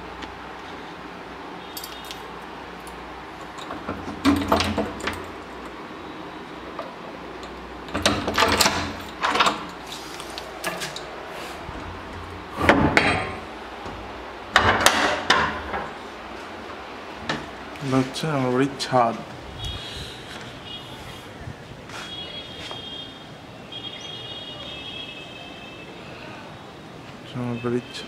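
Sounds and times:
keys jangling: 0:01.7 - 0:03.0
metal door bolt rattling: 0:03.5 - 0:05.4, 0:07.9 - 0:09.8.

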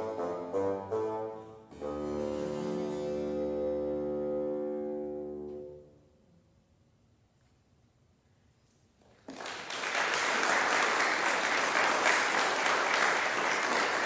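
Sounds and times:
audience applause: 0:09.2 - 0:14.0.

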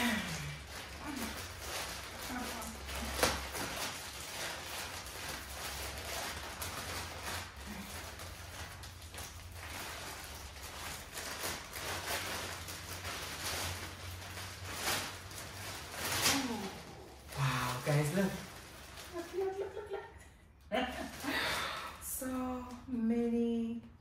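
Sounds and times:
plastic bag rustling and tearing: 0:00.0 - 0:20.0, 0:20.8 - 0:22.0.

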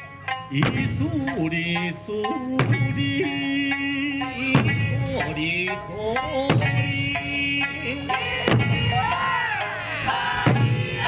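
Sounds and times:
big drum beats: 0:00.0 - 0:11.0
person singing folk melody: 0:00.0 - 0:11.0.

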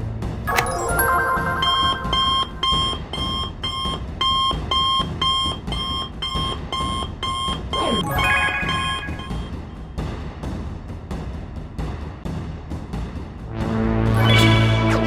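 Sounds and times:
smartwatch call alert beeps: 0:00.5 - 0:09.6.

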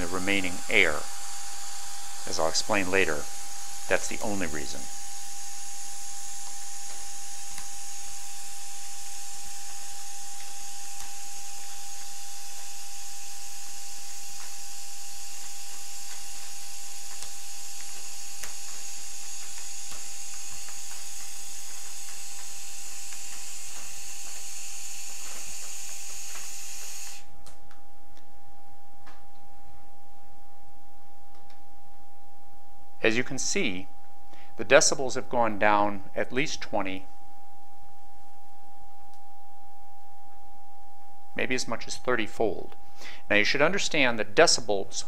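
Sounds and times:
hiss of helium jet: 0:00.0 - 0:27.3
steady test tone: 0:00.0 - 0:45.0.

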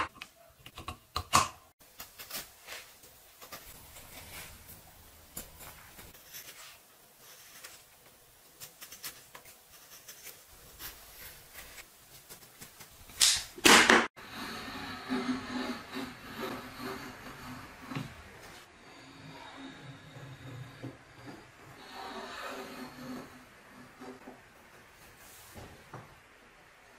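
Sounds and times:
blade shaving wooden handle: 0:14.2 - 0:24.2
chisel scraping wood: 0:14.2 - 0:24.4.

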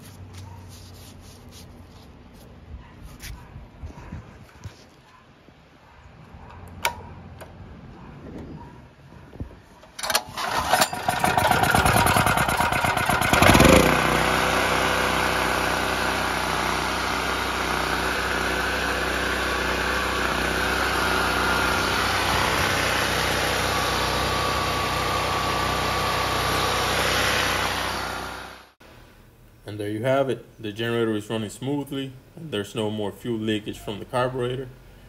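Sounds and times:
recoil starter pull: 0:09.9 - 0:14.2
generator engine running: 0:10.0 - 0:28.8.

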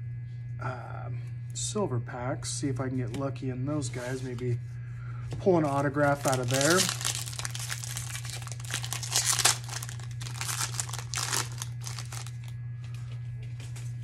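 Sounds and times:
foil wrapper crinkling and tearing: 0:05.6 - 0:12.6.

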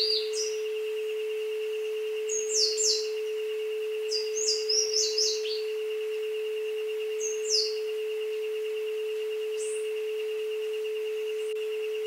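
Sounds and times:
bird chirping: 0:00.0 - 0:00.9, 0:01.8 - 0:08.5, 0:09.1 - 0:10.0
high steady buzz: 0:00.0 - 0:12.0
low electronic tone: 0:00.0 - 0:12.0.

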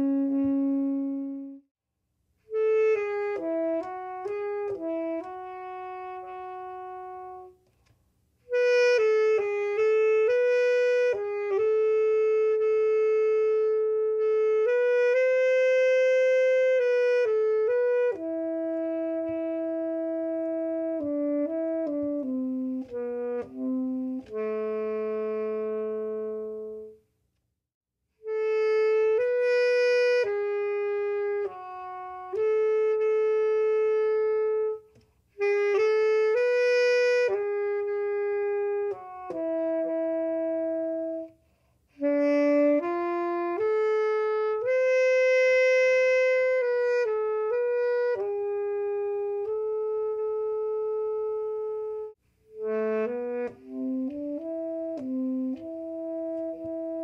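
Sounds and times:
tenor saxophone melody: 0:00.0 - 0:01.7, 0:02.4 - 0:27.4, 0:28.2 - 0:57.0.

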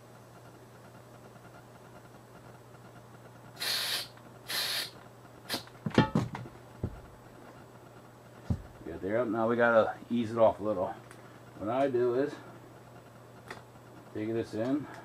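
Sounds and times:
compressed air hissing: 0:03.6 - 0:05.7
knocks and clatter: 0:05.8 - 0:07.1.

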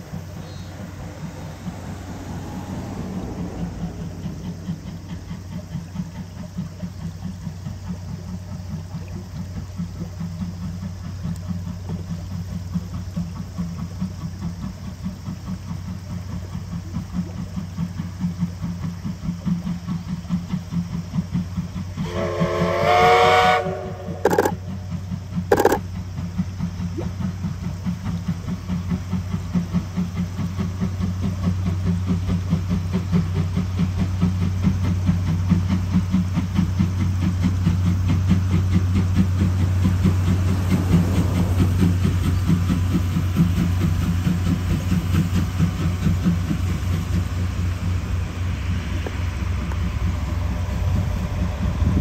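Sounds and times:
steam train running: 0:00.0 - 0:52.0
train rumble: 0:00.0 - 0:52.0
steam whistle: 0:22.0 - 0:24.8, 0:25.5 - 0:25.8.

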